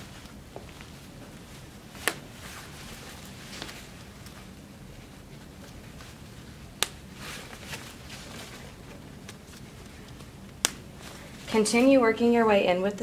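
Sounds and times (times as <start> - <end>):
fabric handling: 0.0 - 12.0.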